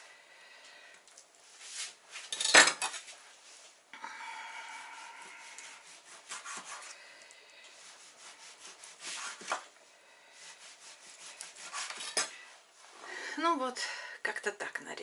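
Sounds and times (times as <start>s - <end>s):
knife slicing meat on cutting board: 5.8s - 6.9s, 11.0s - 12.3s.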